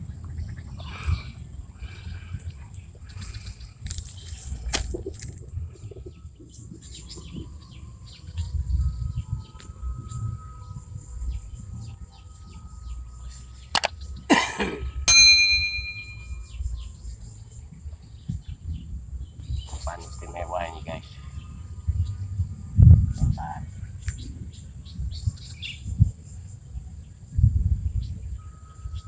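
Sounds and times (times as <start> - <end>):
wind rumble on microphone: 0.0 - 29.0
bird chirps: 3.0 - 14.3, 15.0 - 22.2
sharp clicks: 13.7 - 14.0
short metallic ring: 15.0 - 16.6.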